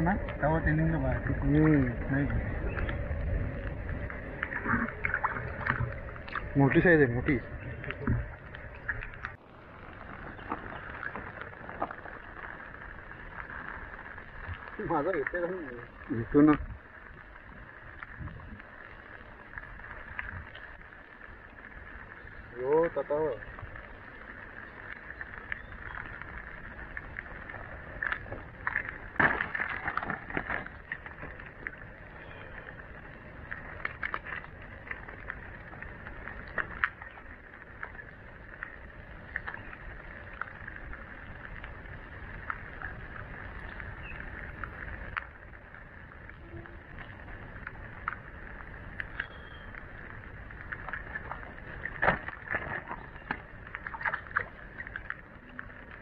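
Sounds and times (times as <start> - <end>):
steady high-pitched hum: 0.0 - 11.3
splashes in shallow water: 4.1 - 16.7, 21.9 - 41.2, 48.9 - 56.0.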